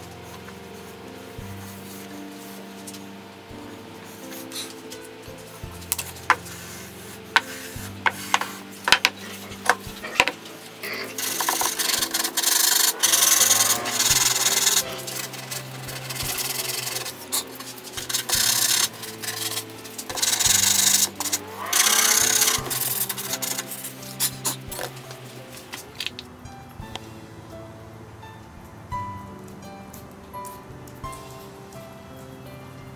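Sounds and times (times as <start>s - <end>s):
sandpaper rasping on wood: 6.1s - 24.9s.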